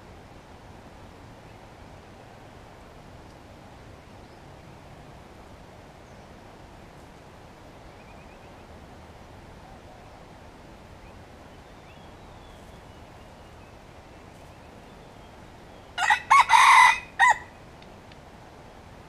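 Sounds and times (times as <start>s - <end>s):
rooster crowing: 16.0s - 17.6s.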